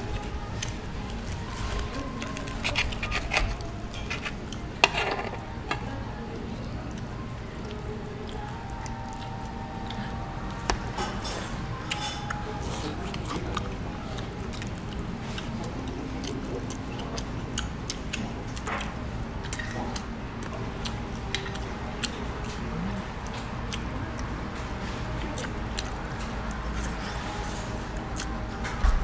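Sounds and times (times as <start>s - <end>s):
room hum: 0.0s - 29.0s
cutlery and dishes clicking: 2.6s - 5.8s.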